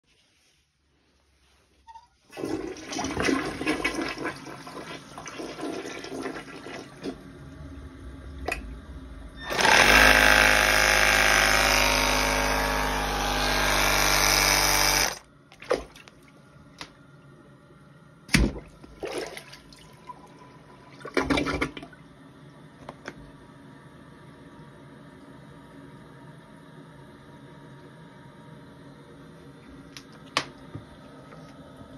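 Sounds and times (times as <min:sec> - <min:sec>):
toilet flushing: 0:02.3 - 0:07.7, 0:18.5 - 0:22.0
air pump humming: 0:09.4 - 0:15.3.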